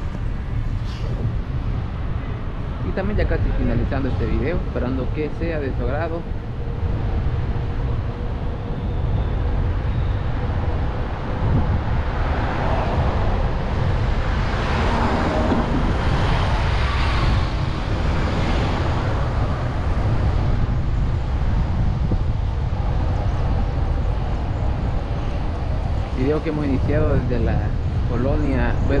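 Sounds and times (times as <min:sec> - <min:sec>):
road traffic: 0:00.0 - 0:29.0
wind on microphone: 0:00.0 - 0:29.0
vehicle passing: 0:11.1 - 0:20.7.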